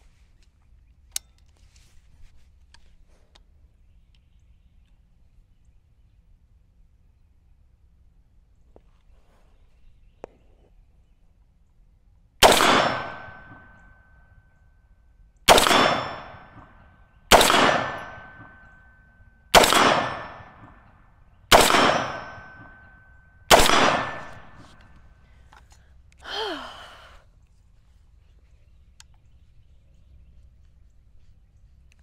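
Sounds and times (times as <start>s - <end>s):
rifle shots with ringing tail: 12.4s - 14.6s, 15.5s - 25.2s.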